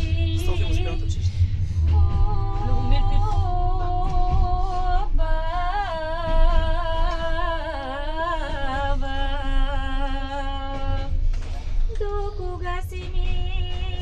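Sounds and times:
group singing unaccompanied: 0.0s - 1.2s, 1.8s - 11.1s
train rumbling: 0.0s - 14.0s.

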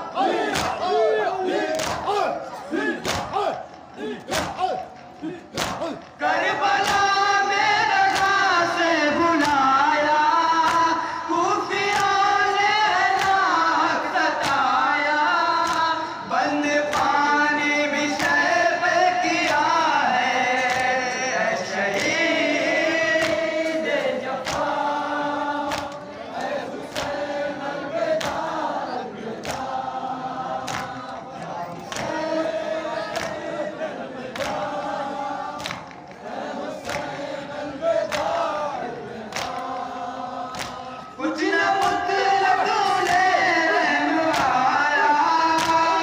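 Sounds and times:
men chanting a lament: 0.0s - 46.0s
hands slapping chests: 0.4s - 0.9s, 1.6s - 7.1s, 8.0s - 8.4s, 9.4s - 9.7s, 10.6s - 10.9s, 11.9s - 12.2s, 13.1s - 13.5s, 14.3s - 14.8s, 15.6s - 16.0s, 23.1s - 24.9s, 25.6s - 27.4s, 28.1s - 29.9s, 30.5s - 33.6s, 34.2s - 37.2s, 38.0s - 41.0s, 42.9s - 44.7s, 45.5s - 45.9s.

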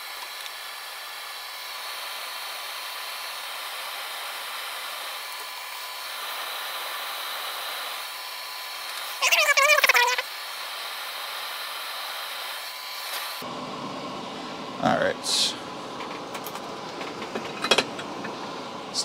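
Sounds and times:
extractor fan whooshing hiss: 0.0s - 9.2s, 10.3s - 15.8s.

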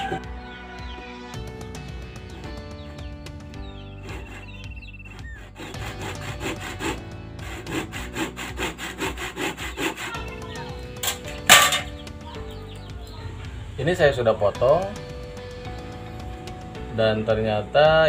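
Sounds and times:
handsaw cutting a log: 4.0s - 11.9s.

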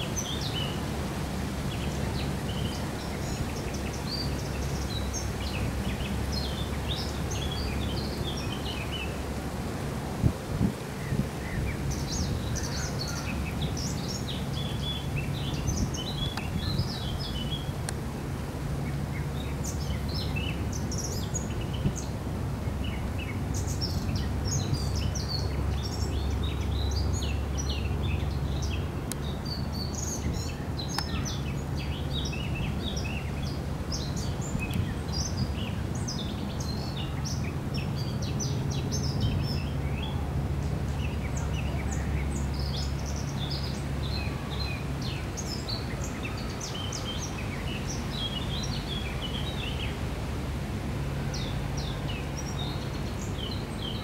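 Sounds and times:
songbirds chirping: 0.0s - 54.0s
boat engine drone: 37.1s - 54.0s.

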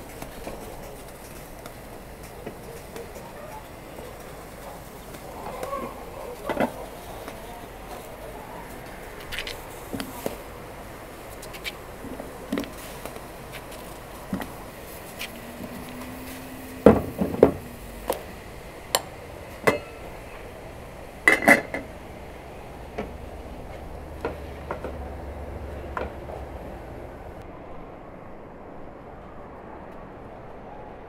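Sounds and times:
dishes and utensils clinking: 19.6s - 20.1s, 21.3s - 21.9s.

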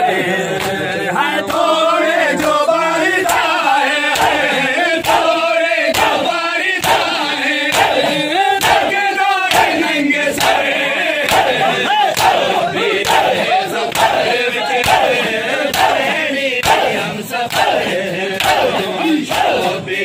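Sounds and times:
crowd of men chanting: 0.0s - 20.0s
hands slapping chests: 4.2s - 5.3s, 5.9s - 8.9s, 10.4s - 14.2s, 14.8s - 16.0s.

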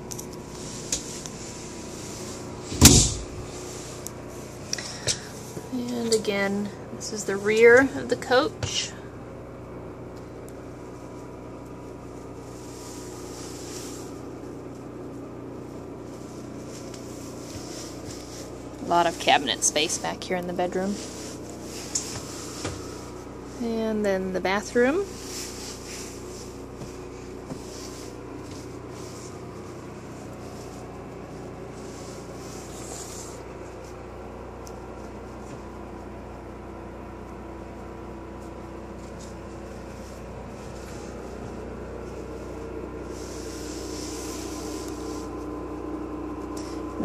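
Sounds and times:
steady machine hum: 0.0s - 47.0s
handling rustle: 20.7s - 23.6s, 25.0s - 34.1s
footsteps: 25.1s - 29.4s.

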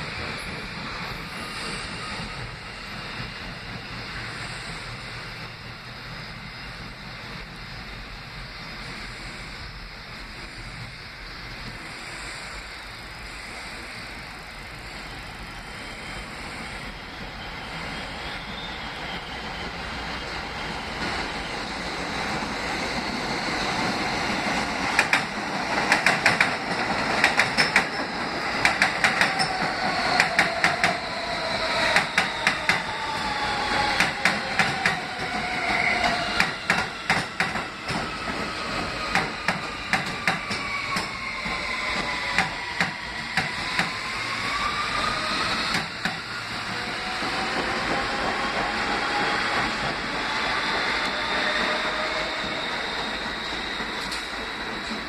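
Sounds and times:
train wheels clacking over rail joints: 24.9s - 31.1s, 33.9s - 44.0s.

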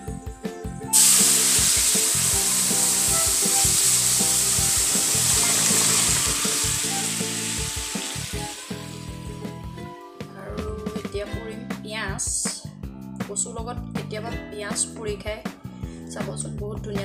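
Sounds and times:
oil sizzling loudly in a wok: 0.9s - 9.8s.

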